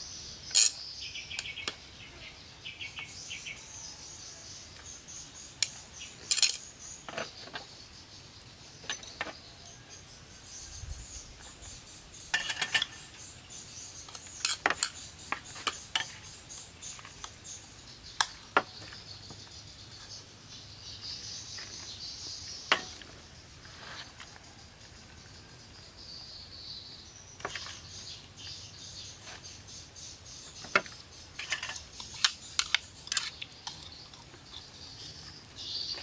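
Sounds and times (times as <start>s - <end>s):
insects chirring: 0.0s - 36.0s
utensils clinking on metal: 0.5s - 0.8s, 6.2s - 7.3s, 8.8s - 9.4s, 12.3s - 13.1s, 14.1s - 16.2s, 31.3s - 33.8s.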